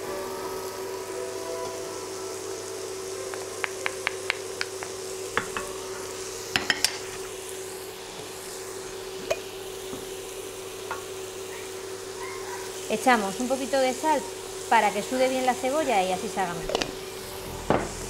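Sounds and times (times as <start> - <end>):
onion sizzling in frying pan: 0.0 - 18.0
steady hum: 12.9 - 18.0.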